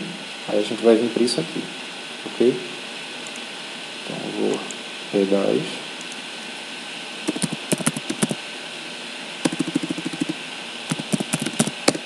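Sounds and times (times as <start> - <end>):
steady hiss: 0.0 - 12.0
keyboard keys clicking: 7.3 - 8.4, 9.5 - 12.0.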